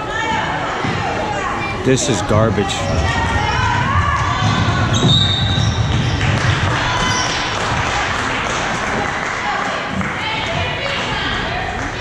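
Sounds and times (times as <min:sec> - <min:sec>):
spectators chattering: 0:00.0 - 0:12.0
basketball bouncing on court: 0:03.9 - 0:07.4.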